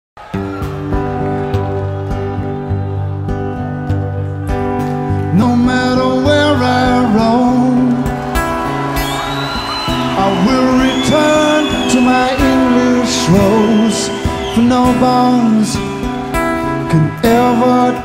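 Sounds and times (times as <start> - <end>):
acoustic guitar chords: 0.2 - 18.0
person singing: 5.2 - 8.3, 10.0 - 18.0.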